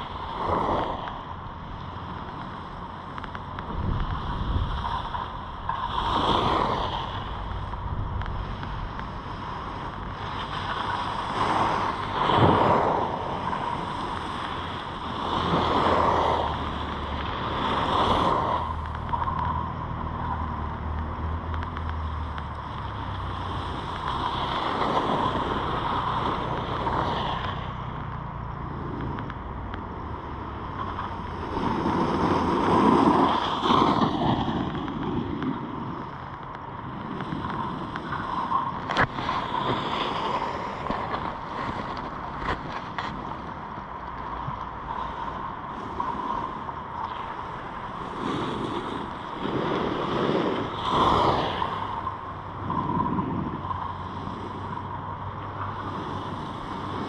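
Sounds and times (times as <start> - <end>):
wind on microphone: 0.0 - 57.0
skis scraping over snow: 3.7 - 19.5, 37.0 - 43.6.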